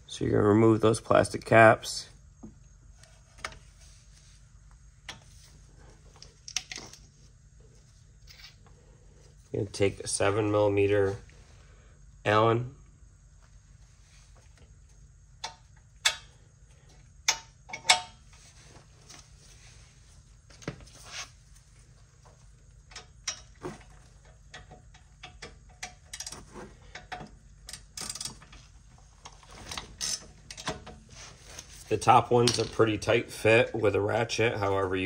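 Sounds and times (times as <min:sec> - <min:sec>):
ratchet clicking: 0:27.7 - 0:28.4.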